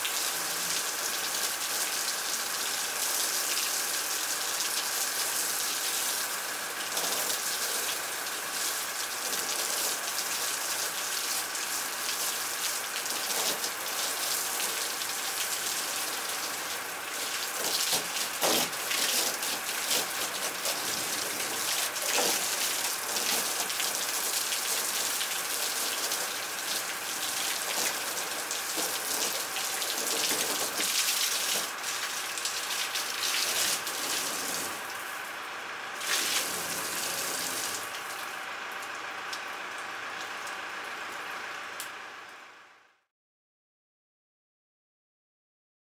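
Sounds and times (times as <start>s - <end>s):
hose spray pattering on plastic: 0.2s - 35.0s, 36.0s - 38.2s
water splashing on wet concrete: 6.9s - 35.0s, 36.0s - 38.3s.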